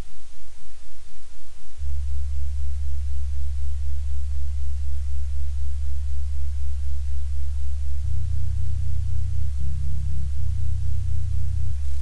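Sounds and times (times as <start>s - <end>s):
pulsing low sine tones: 0.0s - 12.0s
louder low tone: 1.5s - 12.0s.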